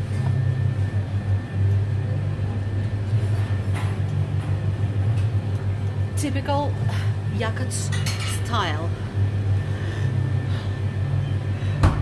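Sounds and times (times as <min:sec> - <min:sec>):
kitchen equipment humming: 0:00.0 - 0:12.0.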